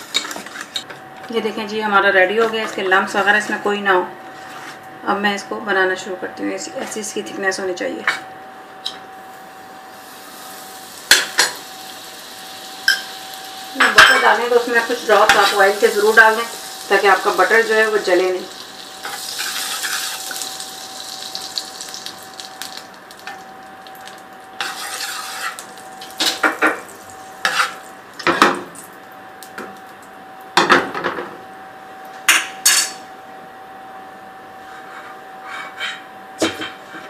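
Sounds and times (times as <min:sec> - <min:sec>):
faint steady hum: 0:00.1 - 0:30.8
butter sizzling in a frying pan: 0:09.9 - 0:28.0
utensils clinking against pan: 0:12.9 - 0:13.1, 0:13.8 - 0:14.4, 0:15.0 - 0:16.2.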